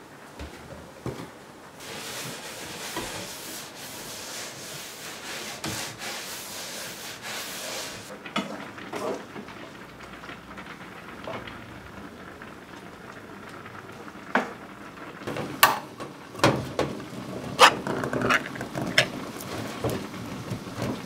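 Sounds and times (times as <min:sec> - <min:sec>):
cloth wiping wooden tabletop: 0:01.8 - 0:08.1.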